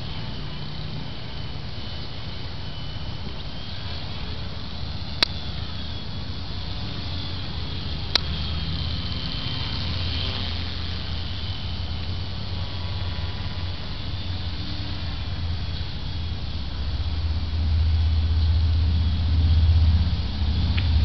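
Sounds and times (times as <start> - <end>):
low rumble: 0.0 - 21.0
model plane motor whine: 0.0 - 21.0.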